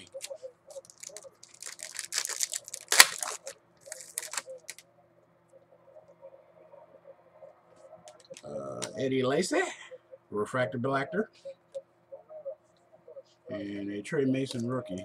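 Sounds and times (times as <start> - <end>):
foil wrapper crinkling and tearing: 0.0 - 4.8.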